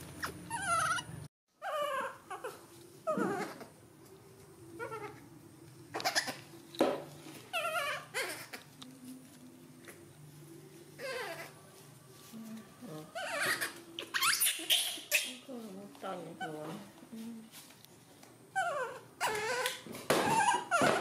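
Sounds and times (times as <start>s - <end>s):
baby monkey crying: 0.2s - 3.7s, 5.9s - 6.5s, 7.5s - 8.7s, 11.0s - 11.6s, 13.1s - 15.4s, 18.5s - 21.0s.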